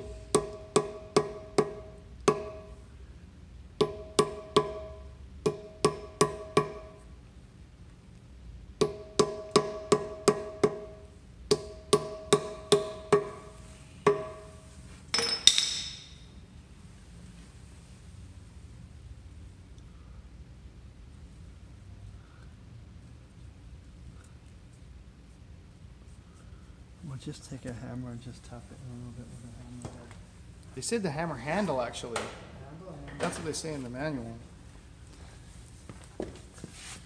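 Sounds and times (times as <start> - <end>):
hammer tapping metal: 0.0 - 2.8, 3.8 - 7.0, 8.8 - 16.2.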